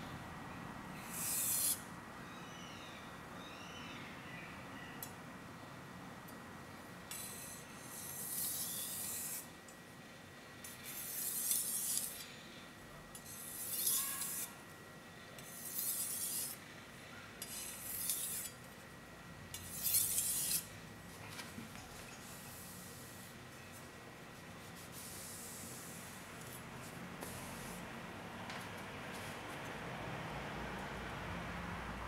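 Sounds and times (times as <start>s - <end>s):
knife scraping on whetstone: 1.0s - 1.8s, 7.1s - 9.5s, 10.8s - 12.3s, 13.2s - 14.6s, 15.4s - 16.6s, 17.4s - 18.6s, 19.6s - 20.7s.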